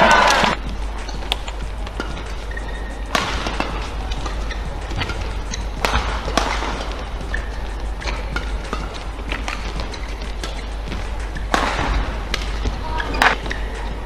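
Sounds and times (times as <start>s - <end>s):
racket hitting shuttlecock: 0.0s - 14.0s
steady hum in hall: 0.0s - 14.0s.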